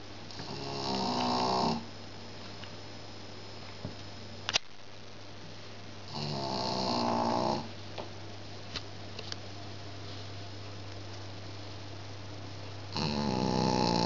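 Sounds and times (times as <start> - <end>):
dog snoring: 0.3 - 1.9, 6.1 - 7.7, 12.9 - 14.0.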